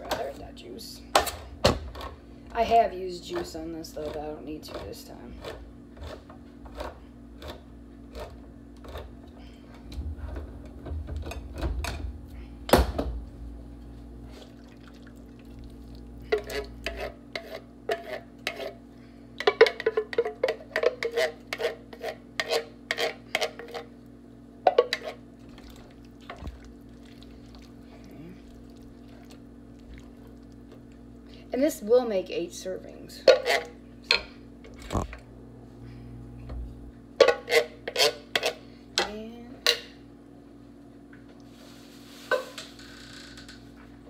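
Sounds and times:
steady low hum: 0.0s - 44.0s
spoon scraping inside metal can: 16.4s - 18.8s.

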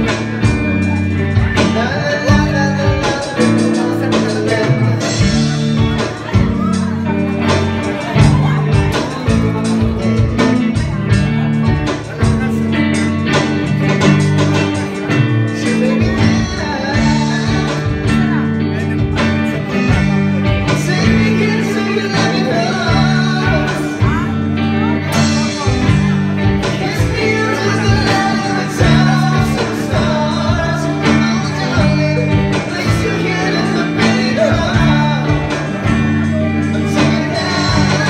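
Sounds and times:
bass: 0.0s - 38.0s
electric guitar playing: 0.0s - 38.0s
steady drum beat: 0.0s - 38.0s.

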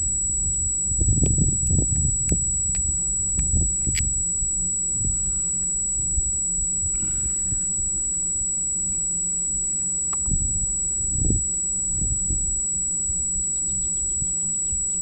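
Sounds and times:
wind buffeting microphone: 0.0s - 4.2s, 10.2s - 14.8s.

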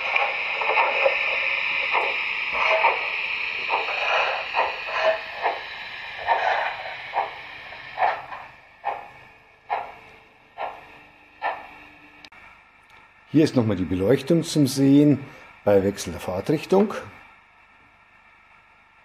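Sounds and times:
steam hiss from small loudspeaker: 0.0s - 9.9s
steam exhaust chuffs: 0.0s - 12.3s.

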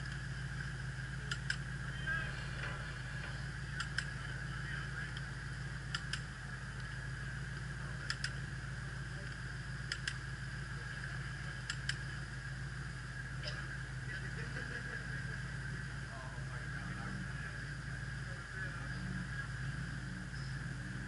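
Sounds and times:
low mechanical hum: 0.0s - 21.0s
sharp clicks: 1.2s - 1.7s, 3.7s - 4.2s, 5.9s - 6.9s, 8.0s - 8.4s, 9.3s - 10.2s, 11.6s - 12.1s.

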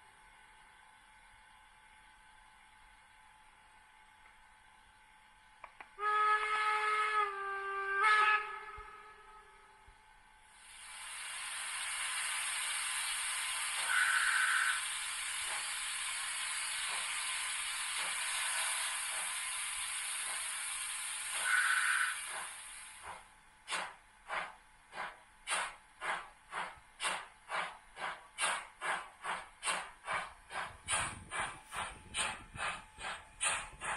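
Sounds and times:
steam locomotive exhaust chuffs: 4.8s - 33.9s
steam hiss: 10.5s - 33.9s.

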